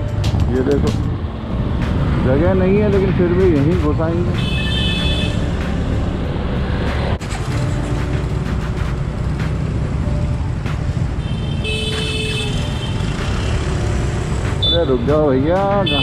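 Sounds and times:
vehicle horn honking: 4.4s - 5.5s, 11.2s - 13.6s.

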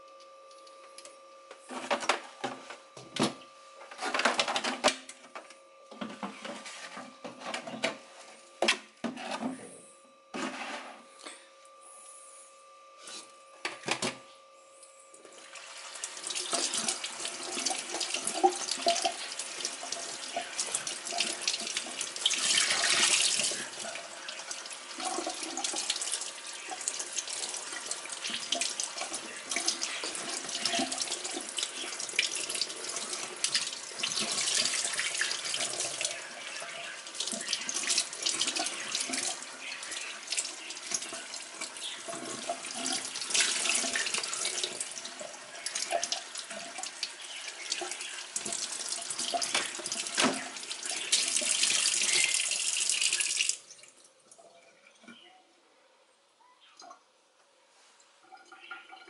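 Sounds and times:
water running into a sink: 15.2s - 54.5s.

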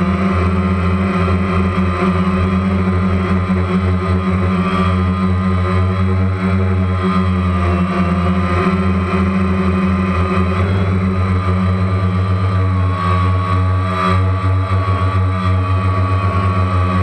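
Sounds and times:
drone propellers whirring: 0.0s - 17.0s.

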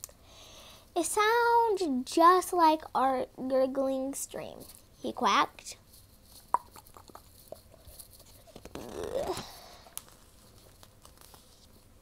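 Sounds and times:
cardboard pages clicking and rustling: 7.4s - 11.9s.

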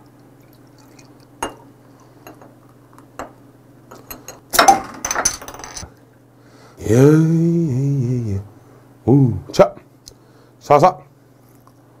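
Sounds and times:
beer pouring and foaming: 0.0s - 2.8s
low steady hum: 0.0s - 12.0s.

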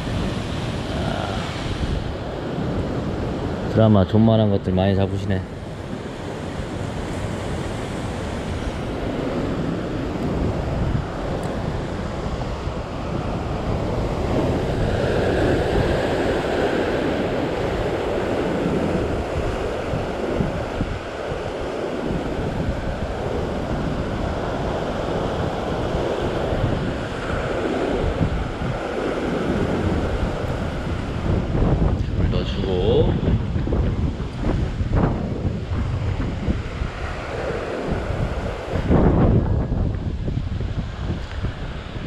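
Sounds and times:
ocean surf breaking on rocks: 0.0s - 42.0s
wind gusting on microphone: 0.0s - 42.0s.

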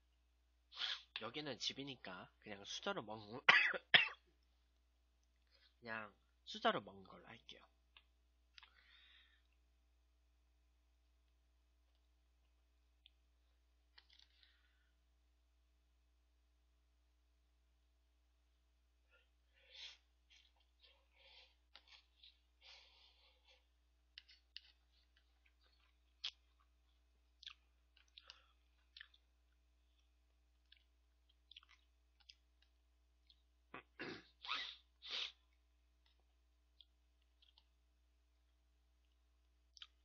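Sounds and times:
mouth clicks and smacks: 7.9s - 8.8s, 24.1s - 35.4s, 36.0s - 37.8s, 39.0s - 40.0s.

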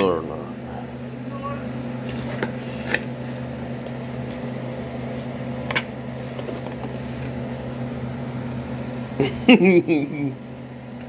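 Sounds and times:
appliance electrical hum: 0.0s - 11.0s.

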